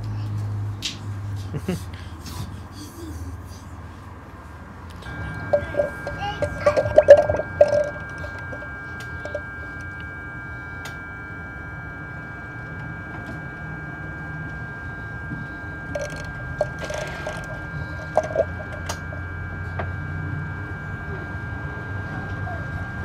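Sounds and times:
power steering pump whine: 0:04.8 - 0:23.0.

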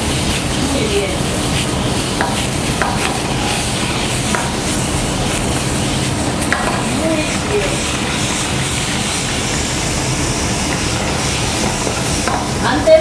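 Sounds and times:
steady rushing noise: 0:00.0 - 0:13.0
vegetables sizzling in a frying pan: 0:00.0 - 0:13.0.

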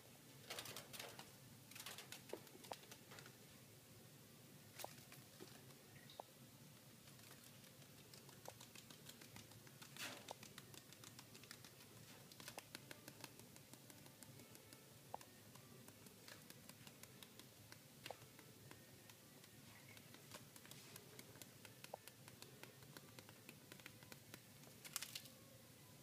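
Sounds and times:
faint hiss: 0:00.0 - 0:26.0.

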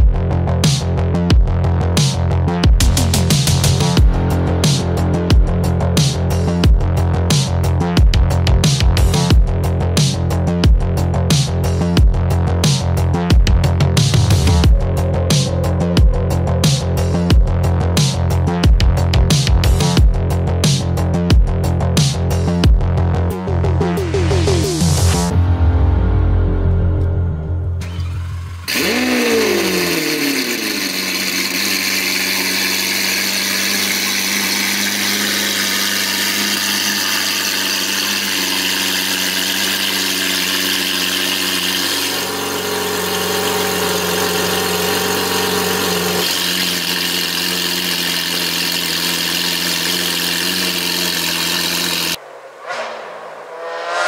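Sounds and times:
car engine starting and idling: 0:23.4 - 0:53.8.

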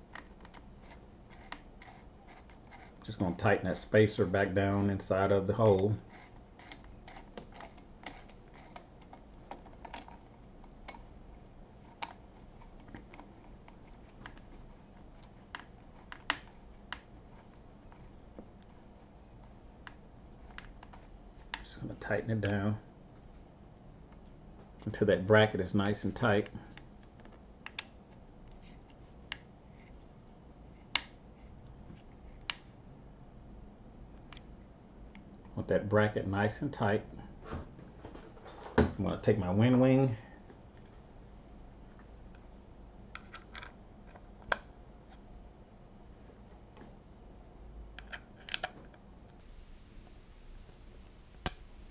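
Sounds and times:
allen key clicking on screw: 0:05.6 - 0:11.1.

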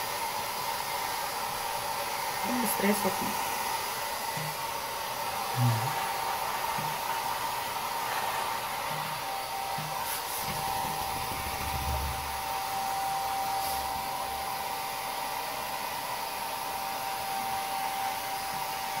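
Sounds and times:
hair dryer running: 0:00.0 - 0:19.0
lower motor whine: 0:03.8 - 0:14.5.

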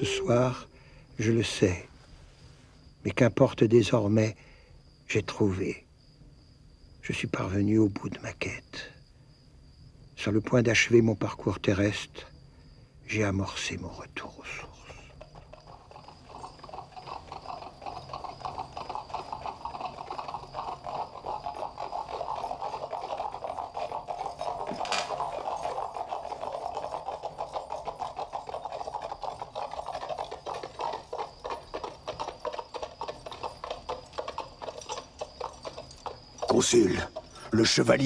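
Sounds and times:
horse hooves clopping: 0:15.1 - 0:38.0.

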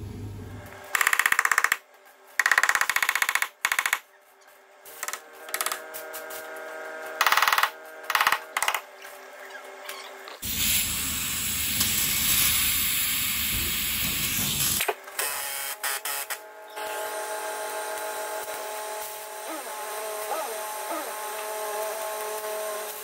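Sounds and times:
gas torch hissing: 0:10.4 - 0:14.8.

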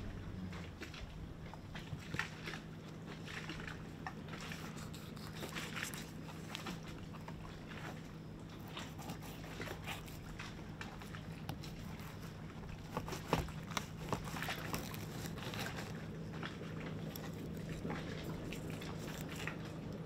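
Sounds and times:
steady low hum: 0:00.0 - 0:20.0
knife scraping fish bones: 0:04.5 - 0:06.9, 0:08.6 - 0:16.0, 0:17.1 - 0:19.6.

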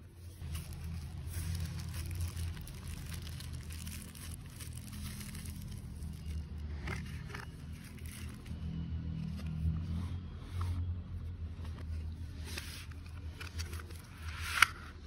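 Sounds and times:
low steady hum: 0:00.0 - 0:15.0
paper crinkling: 0:00.2 - 0:08.6.

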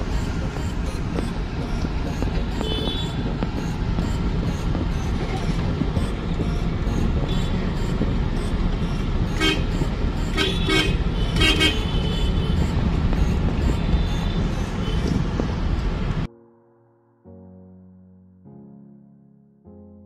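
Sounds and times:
car engine and road drone: 0:00.0 - 0:16.3
vehicle horns tooting: 0:02.4 - 0:03.2, 0:08.8 - 0:15.7.

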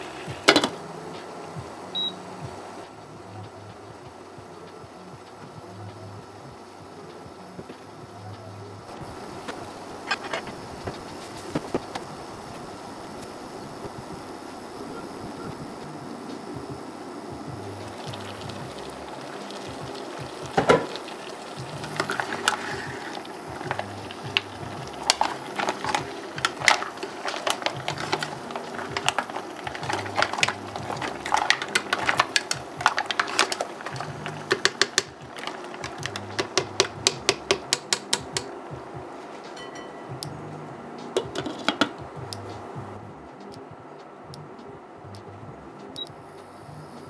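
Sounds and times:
soft background music: 0:00.0 - 0:47.0
mussel shells clacking in metal pot: 0:17.9 - 0:38.5.

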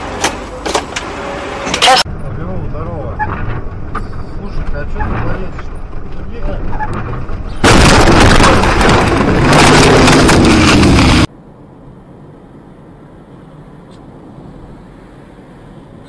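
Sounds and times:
faint road noise of car: 0:00.0 - 0:07.8, 0:11.2 - 0:16.0
car crash with shattering windshield: 0:07.6 - 0:11.3.

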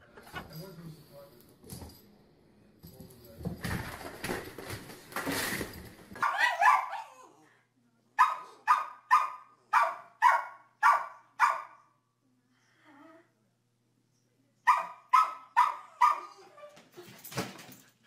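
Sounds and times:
small dog barking: 0:06.2 - 0:07.2, 0:08.2 - 0:11.8, 0:14.7 - 0:16.4.

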